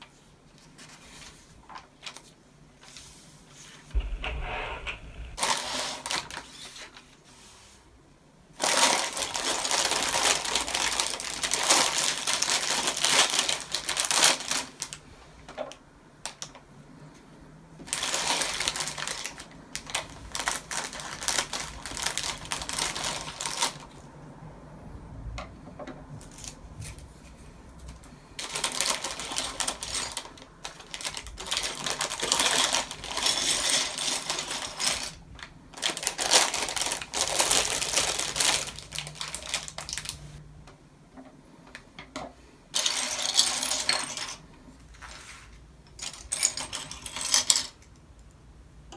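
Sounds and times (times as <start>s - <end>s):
plastic bags crinkling: 5.4s - 6.5s, 8.6s - 15.0s, 17.9s - 23.9s, 28.4s - 40.2s
plastic bricks rattling: 28.4s - 35.2s.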